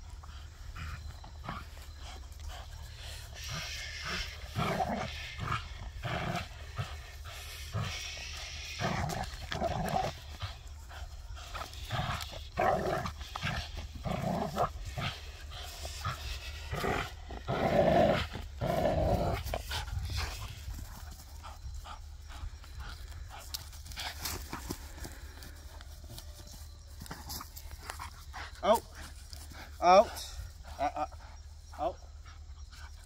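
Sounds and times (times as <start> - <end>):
dog growling: 0.2 - 20.3.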